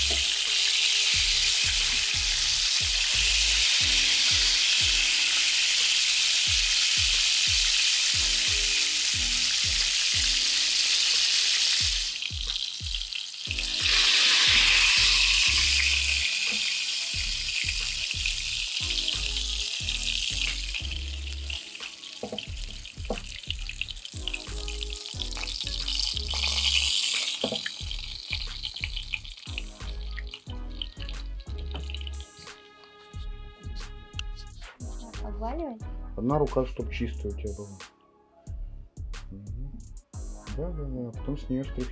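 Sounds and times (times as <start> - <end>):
fish sizzling in oil: 0.0 - 32.4.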